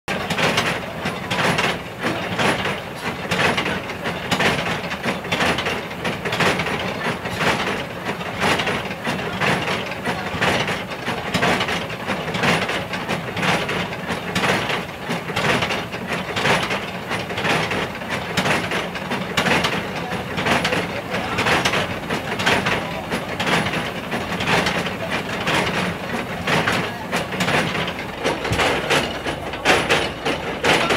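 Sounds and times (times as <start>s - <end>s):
machinery rhythmic mechanical clatter: 0.1s - 30.9s.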